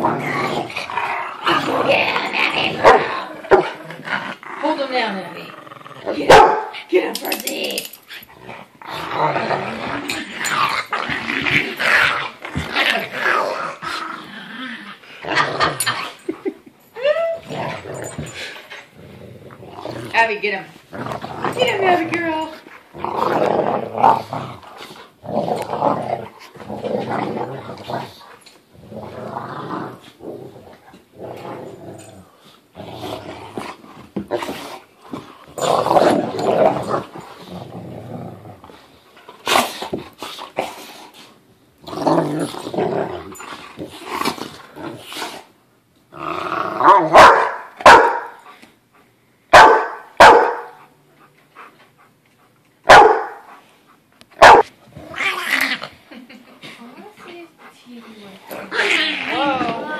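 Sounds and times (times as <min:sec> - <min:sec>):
dogs play growling: 0:00.0 - 0:49.1, 0:50.7 - 0:59.9
dog barking: 0:06.3 - 0:06.7, 0:47.1 - 0:48.4, 0:49.5 - 0:50.8, 0:52.9 - 0:53.5, 0:54.4 - 0:54.7.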